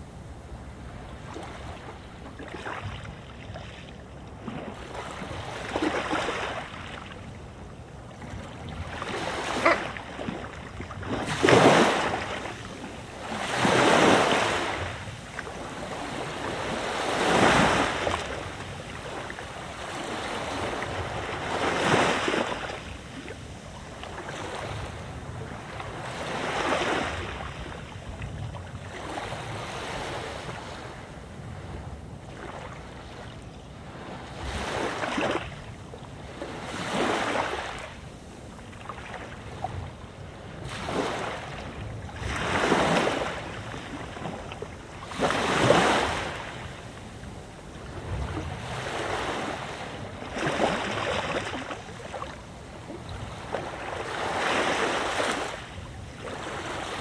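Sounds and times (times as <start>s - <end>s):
low rumble of wind: 0.0s - 57.0s
sea waves breaking on beach: 0.0s - 57.0s.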